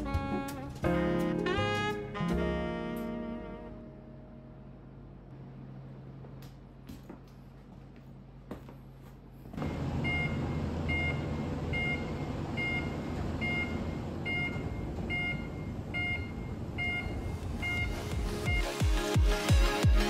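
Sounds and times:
two-tone warning beeps: 9.6 - 18.8.

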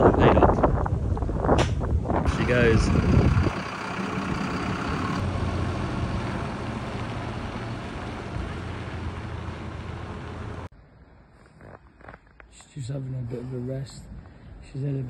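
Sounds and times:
lorry diesel engine running: 2.3 - 10.7.

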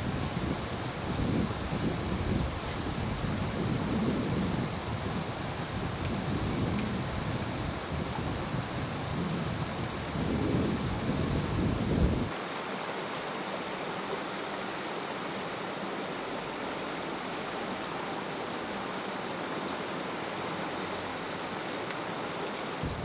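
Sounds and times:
stream flowing over rocks: 12.3 - 23.0.

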